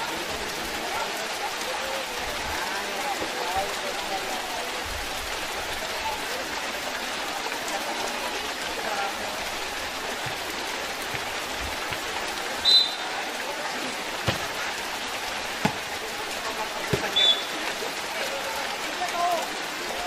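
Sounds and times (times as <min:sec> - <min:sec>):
heavy rain hissing: 0:00.0 - 0:20.0
shrill whistle blast: 0:12.6 - 0:13.1, 0:17.2 - 0:17.5.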